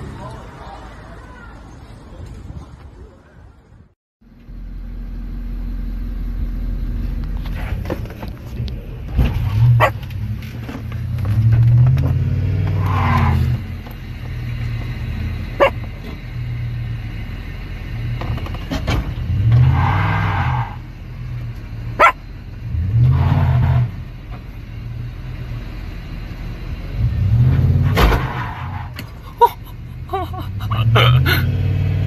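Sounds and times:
car engine revving: 0:04.8 - 0:32.0
dog barking: 0:09.8 - 0:10.0, 0:15.6 - 0:15.8, 0:22.0 - 0:22.2.

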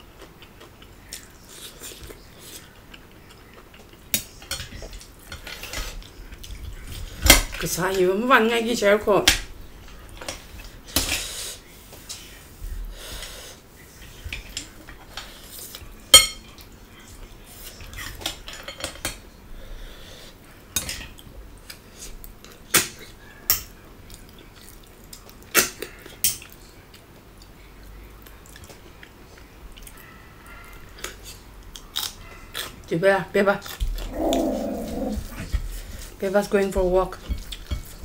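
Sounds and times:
quiet eating sounds: 0:00.0 - 0:08.2, 0:09.3 - 0:38.0
cutlery clinking on plates: 0:16.1 - 0:16.6, 0:17.8 - 0:19.2, 0:20.8 - 0:21.2, 0:37.2 - 0:38.0.

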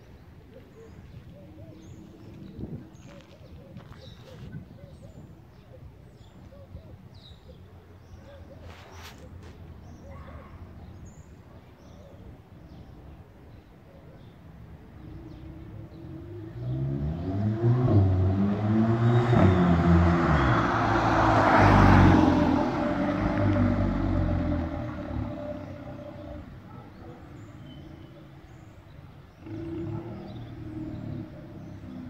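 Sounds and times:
car exhaust accelerating past: 0:16.2 - 0:26.2.

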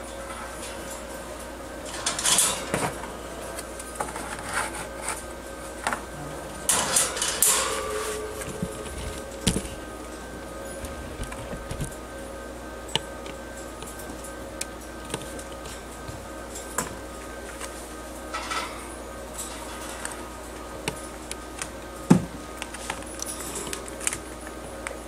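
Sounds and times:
wire-mesh cage clattering: 0:00.0 - 0:04.3, 0:06.1 - 0:12.2, 0:18.1 - 0:25.0
faint steady hum: 0:00.0 - 0:25.0
cardboard tray rustling: 0:10.8 - 0:11.9.

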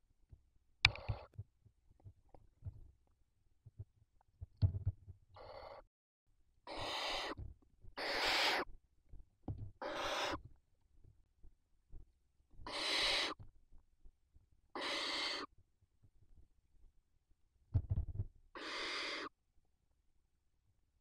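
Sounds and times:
owls hissing calls: 0:05.4 - 0:05.8, 0:06.7 - 0:07.4, 0:08.0 - 0:08.7, 0:09.8 - 0:10.4, 0:12.7 - 0:13.4, 0:14.8 - 0:15.5, 0:18.6 - 0:19.3.

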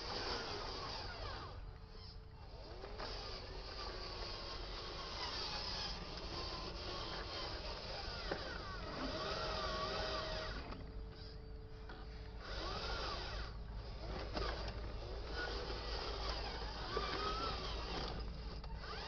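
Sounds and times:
small electric motor whining: 0:00.0 - 0:19.0.

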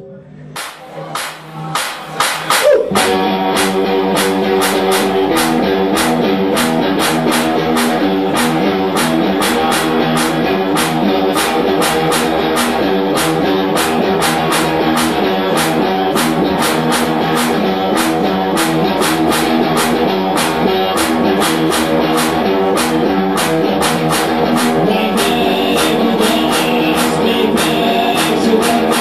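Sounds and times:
person singing: 0:00.0 - 0:29.0
electric guitar chords: 0:00.6 - 0:29.0
fast drum beat: 0:00.6 - 0:29.0.

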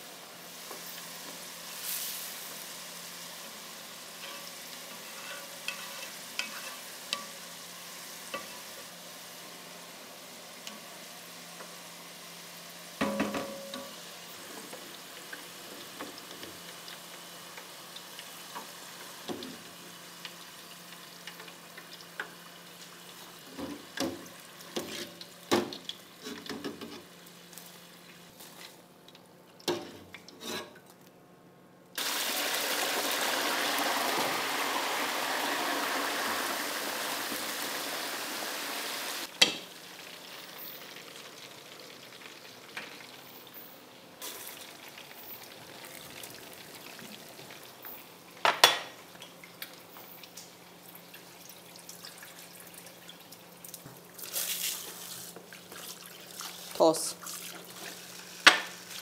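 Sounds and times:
loud even sizzle: 0:00.0 - 0:26.2, 0:32.0 - 0:49.1
chips frying in hot oil: 0:00.0 - 0:30.8, 0:32.0 - 0:59.0.

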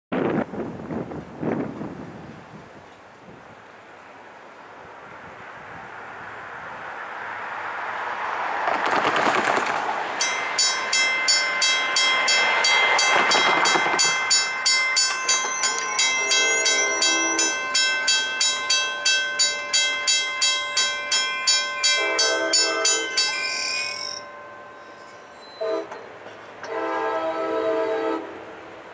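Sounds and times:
road vehicles passing: 0:03.0 - 0:23.6
railroad crossing bell ringing: 0:10.2 - 0:26.9.

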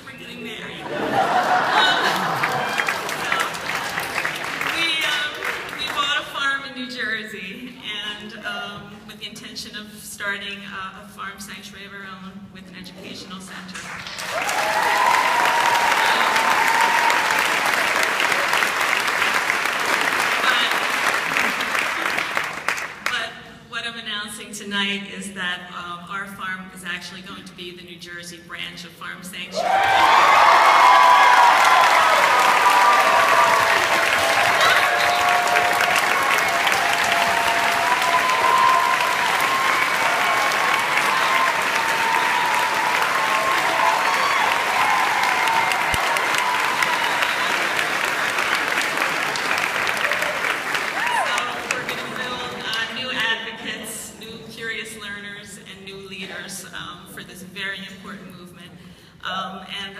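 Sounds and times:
people cheering: 0:00.8 - 0:06.0, 0:14.0 - 0:22.6, 0:29.6 - 0:52.6
audience applauding: 0:00.8 - 0:06.1, 0:13.8 - 0:23.1, 0:29.6 - 0:52.8.

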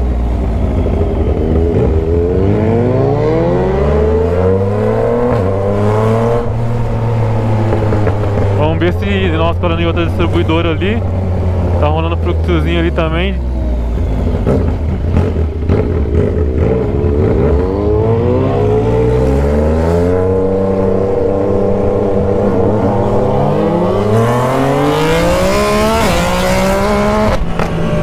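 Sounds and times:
motorcycle engine accelerating: 0:00.0 - 0:28.0.

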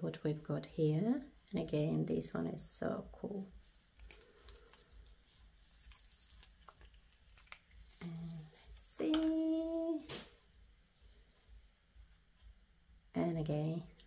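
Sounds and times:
gloved hands rustling: 0:03.5 - 0:13.0.

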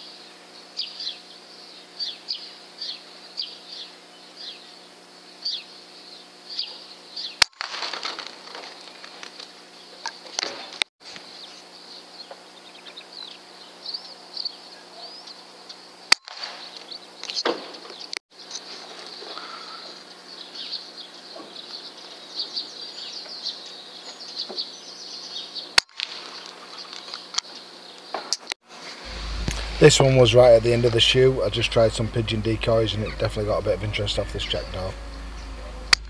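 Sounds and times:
small birds chirping: 0:00.0 - 0:07.5, 0:08.8 - 0:28.5, 0:29.1 - 0:36.0
faint steady hum: 0:28.7 - 0:36.0.

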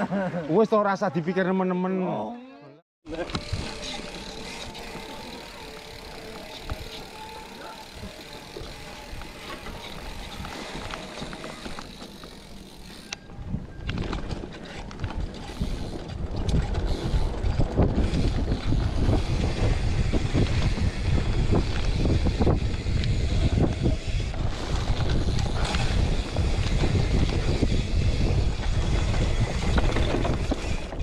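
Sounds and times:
mountain bike rattling on dirt trail: 0:03.1 - 0:31.0
wind rumbling on microphone: 0:12.9 - 0:31.0.

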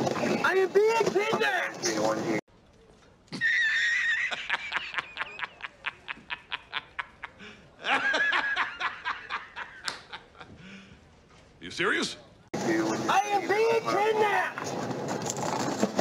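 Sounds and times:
high-pitched laughter: 0:03.3 - 0:10.5.

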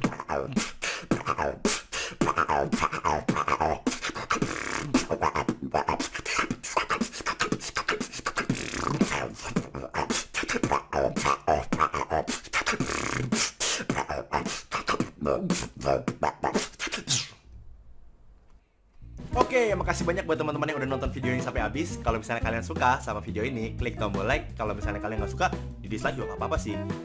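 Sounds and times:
low frog-like mouth croak: 0:00.0 - 0:06.2, 0:08.4 - 0:16.7
human beatboxing: 0:00.0 - 0:17.4.

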